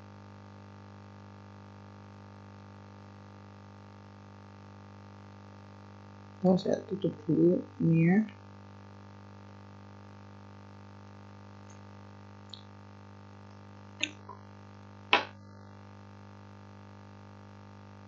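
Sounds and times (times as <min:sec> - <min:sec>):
low electrical hum: 0:00.0 - 0:18.0
clicks and knocks from desk: 0:15.2 - 0:15.4.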